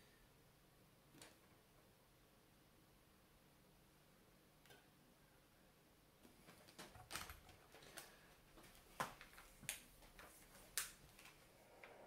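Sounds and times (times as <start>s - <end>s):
faint clicks and light taps: 6.2s - 12.0s.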